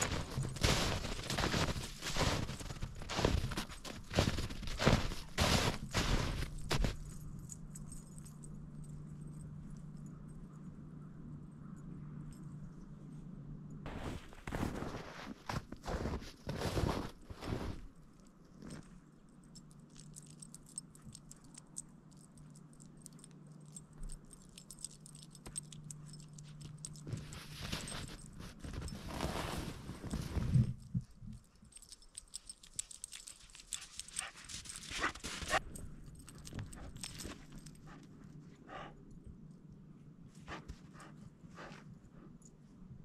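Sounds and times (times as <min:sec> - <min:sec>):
footsteps crunching through snow: 0:00.0 - 0:07.1, 0:13.9 - 0:17.9, 0:27.0 - 0:30.8.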